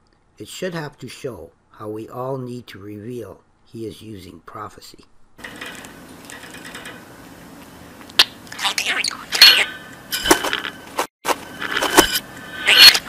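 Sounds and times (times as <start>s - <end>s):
budgerigar chattering: 8.2s - 9.8s, 12.6s - 13.0s.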